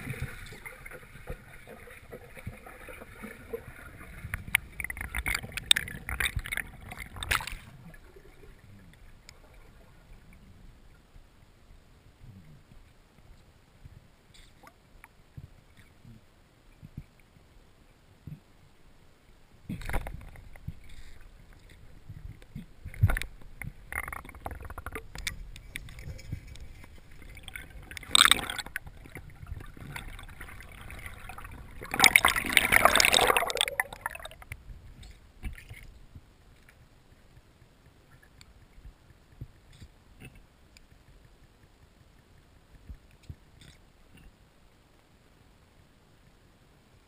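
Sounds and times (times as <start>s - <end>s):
splashing and bubbling: 0.0s - 10.4s, 19.7s - 35.9s
underwater water noise: 0.0s - 47.0s.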